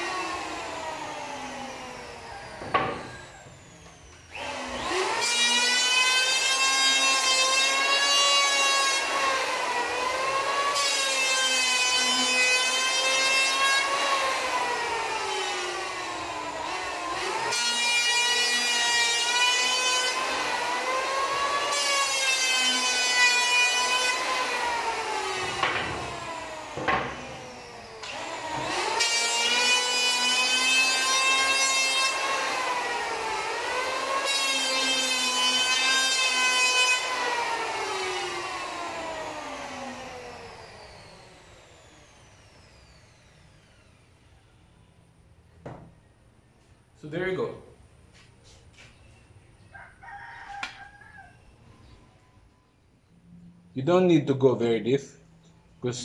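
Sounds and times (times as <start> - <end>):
electric planer motor whine: 0.0 - 44.1.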